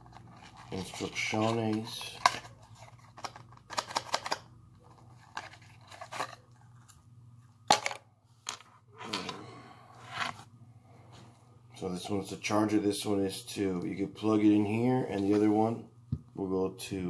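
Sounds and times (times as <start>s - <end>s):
paper rustling and crinkling: 4.8s - 7.0s.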